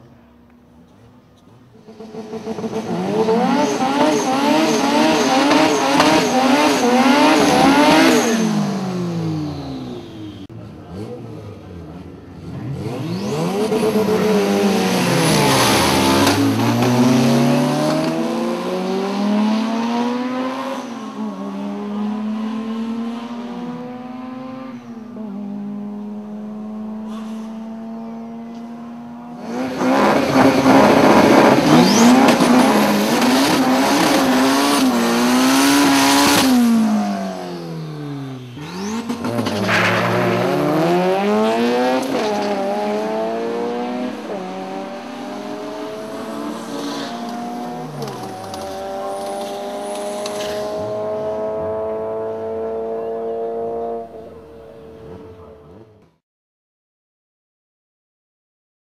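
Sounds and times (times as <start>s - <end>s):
car engine revving: 1.7s - 56.2s
tires spinning in burnout: 29.4s - 51.8s.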